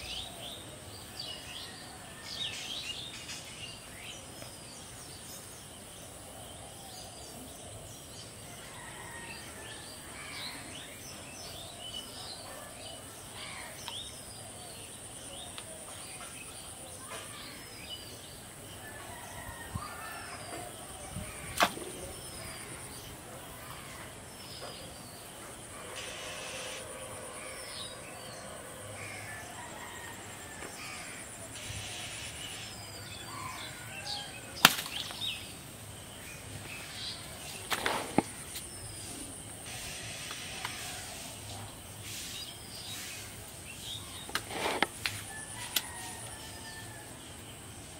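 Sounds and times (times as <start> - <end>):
high insect drone: 25.7 - 34.0, 36.7 - 41.4.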